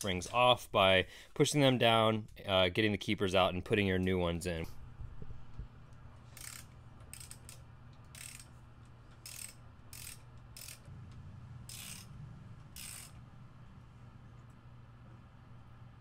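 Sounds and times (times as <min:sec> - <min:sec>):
socket ratchet clicking: 0:06.4 - 0:08.5, 0:09.2 - 0:10.9, 0:11.7 - 0:12.1, 0:12.8 - 0:13.2.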